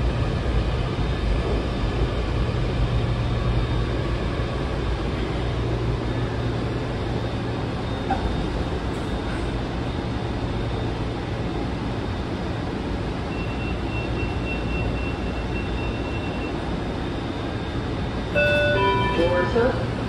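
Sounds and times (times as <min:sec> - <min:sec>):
train interior rumble and hum: 0:00.0 - 0:20.0
faint high whine: 0:18.3 - 0:20.0.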